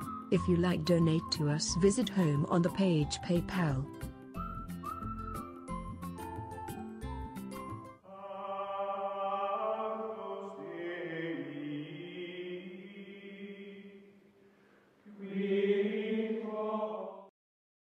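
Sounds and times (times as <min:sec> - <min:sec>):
wordless choir chanting: 0:08.1 - 0:14.2, 0:15.1 - 0:17.3.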